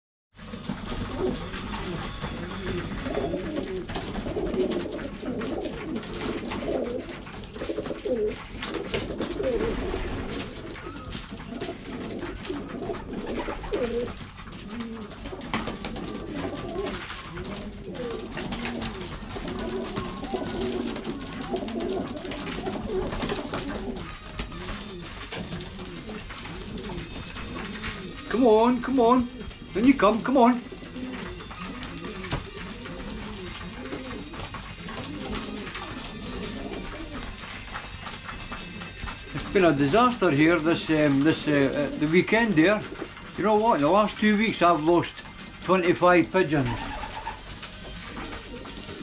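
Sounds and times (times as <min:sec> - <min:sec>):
pigeons cooing: 0:00.4 - 0:49.0
beaks pecking grain: 0:00.5 - 0:49.0.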